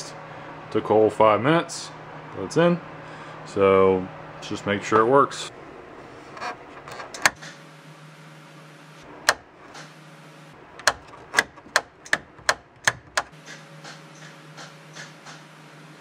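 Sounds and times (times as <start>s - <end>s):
push switch clicks: 9.2s - 9.9s, 10.8s - 15.4s.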